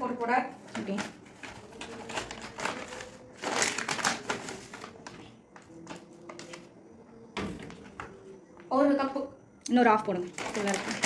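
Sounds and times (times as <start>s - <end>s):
plastic packet crinkling: 0.7s - 5.2s, 10.2s - 11.0s.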